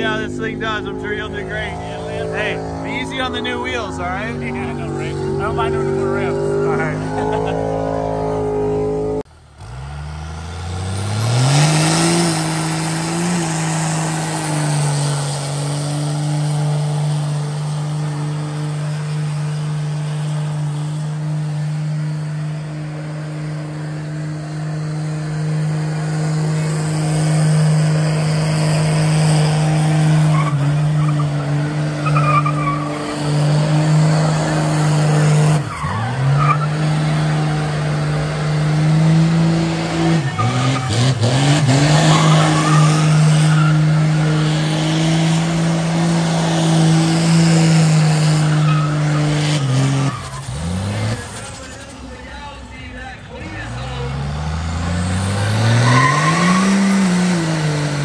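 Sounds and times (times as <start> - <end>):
car engine revving high: 0.0 - 52.0, 53.4 - 58.0
tyres squealing on pavement: 11.2 - 54.3, 54.9 - 58.0.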